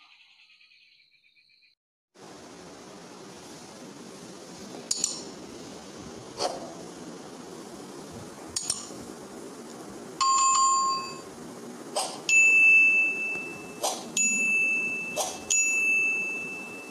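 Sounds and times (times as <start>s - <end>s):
faint steady hiss: 2.2s - 16.9s
bell-like chime: 10.2s - 11.3s, 12.3s - 16.9s
high ding tone: 10.2s - 11.3s, 12.3s - 16.9s.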